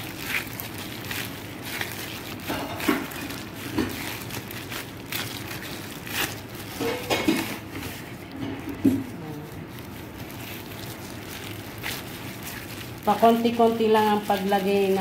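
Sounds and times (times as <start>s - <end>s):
cling wrap crinkling: 0.0s - 15.0s
dough thumping on table: 8.4s - 9.2s.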